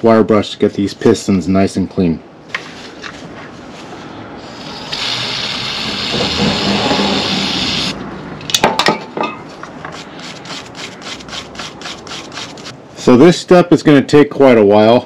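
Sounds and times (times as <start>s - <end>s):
spray hiss: 4.4s - 8.0s.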